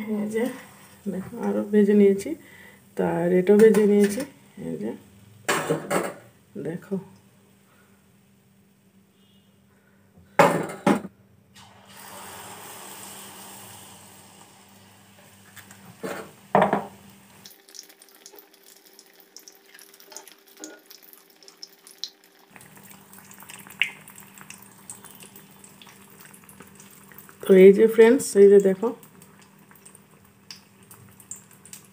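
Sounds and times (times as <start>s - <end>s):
deep-frying sizzle with pops: 11.6s - 31.9s.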